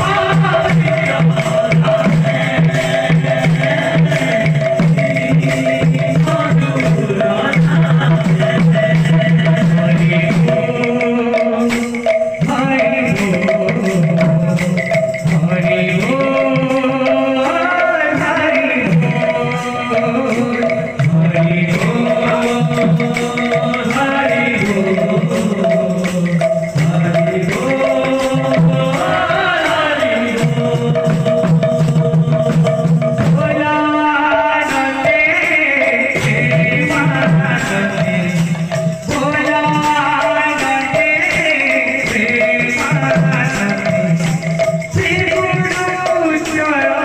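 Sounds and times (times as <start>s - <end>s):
barrel drums beating: 0.0s - 46.8s
man singing lead: 0.0s - 47.0s
group singing in response: 27.0s - 38.5s.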